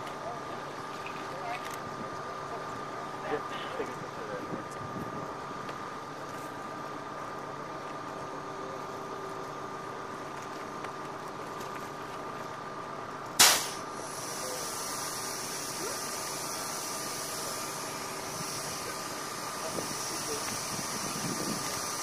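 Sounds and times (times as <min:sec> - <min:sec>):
vehicle engine idling: 0:00.0 - 0:22.0
loud burst of hissing: 0:13.4 - 0:22.0
steady high hiss: 0:13.4 - 0:22.0.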